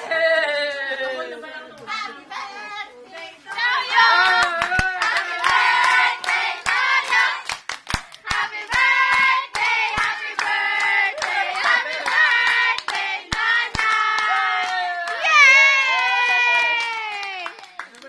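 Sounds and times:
group of people singing: 1.9s - 7.5s, 8.2s - 14.6s
handclaps: 4.2s - 18.0s.

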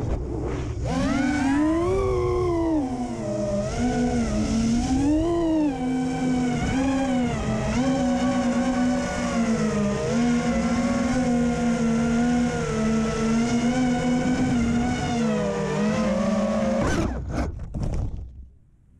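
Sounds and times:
drone motors whining: 0.0s - 17.5s.

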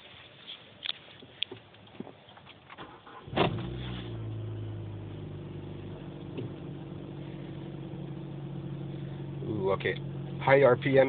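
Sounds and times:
car engine at high idle: 3.3s - 11.0s.

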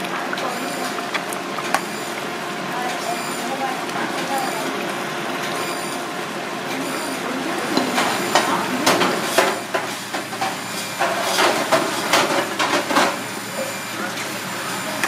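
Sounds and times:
porridge simmering in a saucepan: 0.0s - 15.0s
ladle knocking and scraping a pan: 7.8s - 13.2s.

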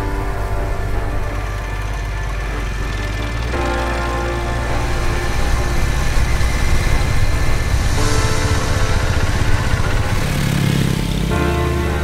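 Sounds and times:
background music: 0.0s - 12.0s
motorcycle engine rumble: 0.0s - 12.0s.

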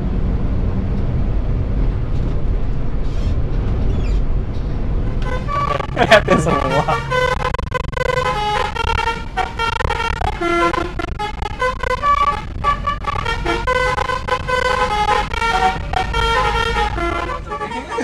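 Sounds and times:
low rumble of bus: 0.0s - 18.0s
bus horn playing a tune: 5.0s - 18.0s.

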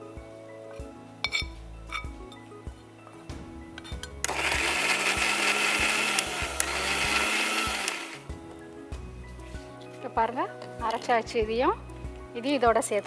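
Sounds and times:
mixer grinder motor grinding: 4.2s - 8.3s.

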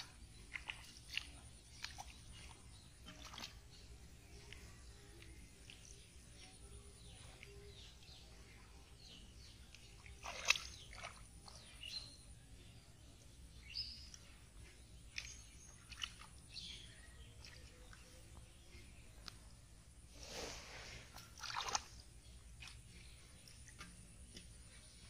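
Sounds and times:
splashes in shallow water: 9.8s - 12.0s, 20.2s - 22.8s.

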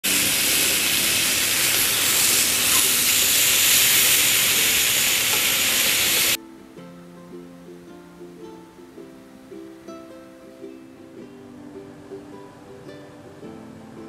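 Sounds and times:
chicken sizzling on a grill: 0.0s - 6.4s
ukulele music: 0.0s - 14.0s.

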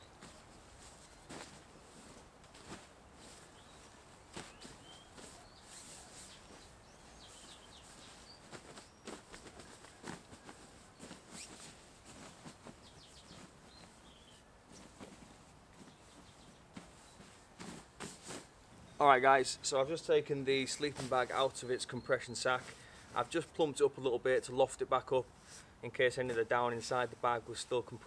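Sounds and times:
fabric rustling and crinkling: 0.0s - 23.6s
bird chirps: 4.5s - 9.2s, 12.8s - 14.4s.

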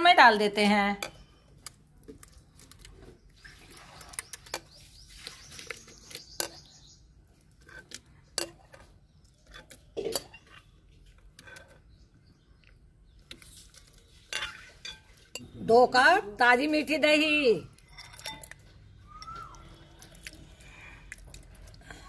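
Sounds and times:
metal spoon scraping glass bowl: 17.8s - 18.6s.

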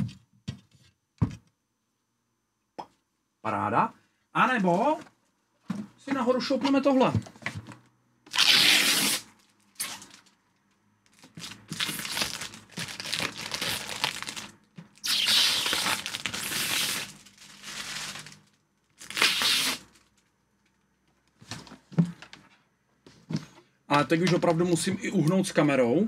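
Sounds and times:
plastic packaging crinkling: 11.1s - 20.3s.

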